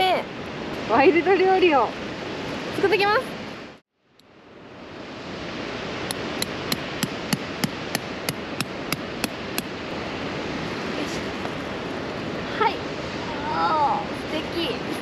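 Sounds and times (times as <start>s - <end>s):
steady rushing noise: 0.0s - 15.0s
hand tool hammering on rocks: 6.4s - 9.7s.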